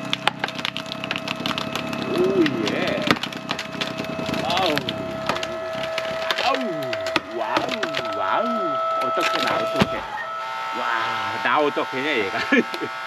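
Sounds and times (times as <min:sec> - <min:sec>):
wood cracking with sharp snaps: 0:00.0 - 0:08.4
wood creaking: 0:00.0 - 0:11.6
log splitter hum: 0:00.0 - 0:13.0.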